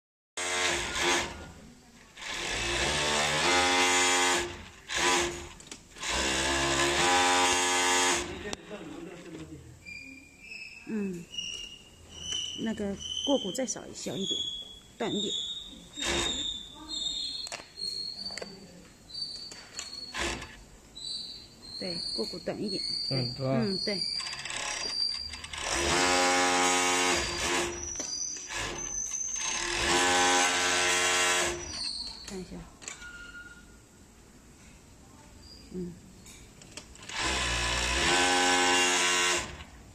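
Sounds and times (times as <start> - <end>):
sewing machine running: 0.4 - 1.5, 2.2 - 8.5, 24.2 - 27.8, 28.5 - 31.7, 37.0 - 39.7.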